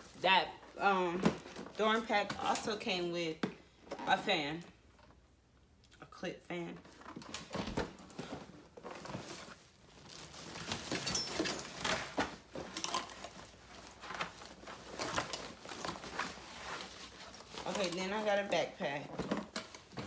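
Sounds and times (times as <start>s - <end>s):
backpack and packaging rustling: 6.8s - 20.0s.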